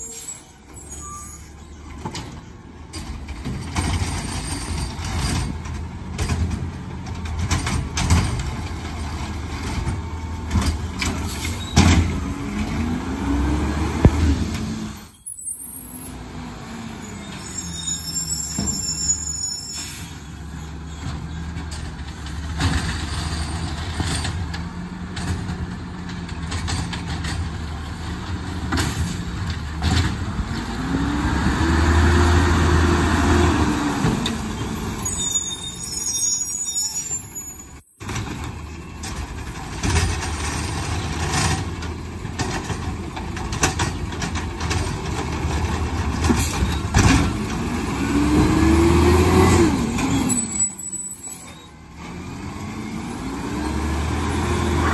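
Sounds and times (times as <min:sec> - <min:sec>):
air brakes hissing and squealing: 0:00.0 - 0:03.2, 0:11.0 - 0:12.2, 0:14.8 - 0:21.8, 0:28.7 - 0:29.4, 0:34.0 - 0:39.2, 0:46.2 - 0:47.0, 0:49.4 - 0:52.4
garbage truck engine revving: 0:06.4 - 0:15.0, 0:20.7 - 0:35.2, 0:38.1 - 0:50.8, 0:51.8 - 0:54.9.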